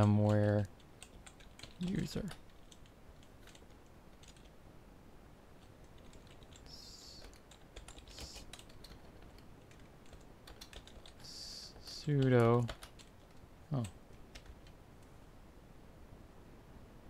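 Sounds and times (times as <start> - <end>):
computer keyboard typing: 0.0 - 4.5, 5.8 - 14.8
soft hissy rustles: 5.4 - 15.5.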